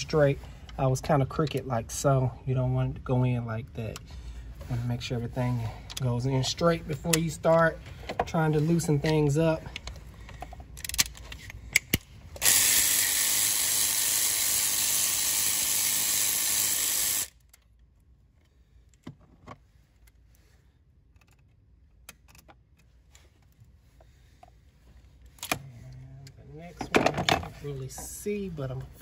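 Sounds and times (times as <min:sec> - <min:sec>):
tool handling clicks: 0:09.0 - 0:12.6, 0:21.1 - 0:23.6
power ratchet running: 0:12.4 - 0:17.3.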